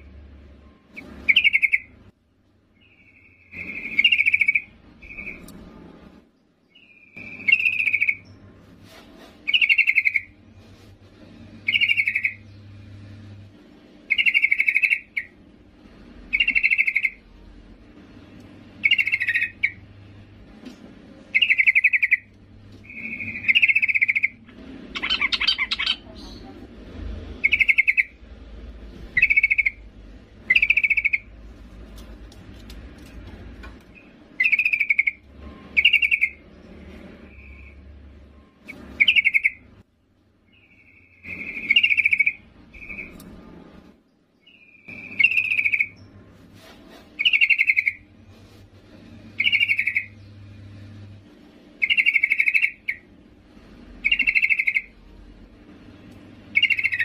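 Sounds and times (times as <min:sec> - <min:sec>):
bird calling: 0:00.9 - 0:02.0, 0:02.8 - 0:05.5, 0:14.1 - 0:15.4, 0:16.3 - 0:17.2, 0:18.8 - 0:19.8, 0:21.3 - 0:26.6, 0:27.4 - 0:28.2, 0:38.6 - 0:39.7, 0:40.5 - 0:43.2, 0:44.4 - 0:46.1, 0:47.2 - 0:48.1, 0:49.4 - 0:50.2, 0:51.8 - 0:53.1, 0:54.0 - 0:55.0, 0:56.5 - 0:57.0.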